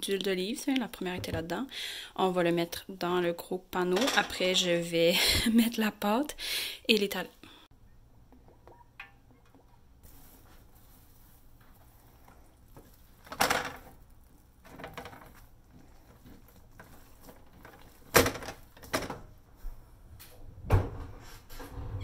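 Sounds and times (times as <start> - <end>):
dough worked in baking pan: 8.4 - 22.0.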